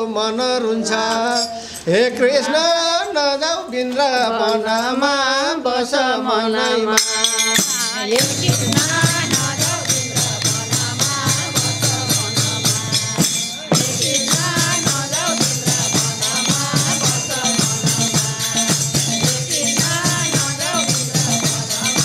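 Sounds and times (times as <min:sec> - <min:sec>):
jingling tambourine percussion: 0:06.5 - 0:22.0
devotional song melody: 0:06.6 - 0:22.0.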